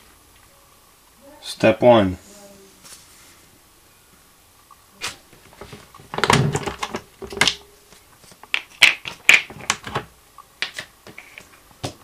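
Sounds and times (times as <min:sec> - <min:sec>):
plastic clicks and knocks: 0:05.7 - 0:07.6.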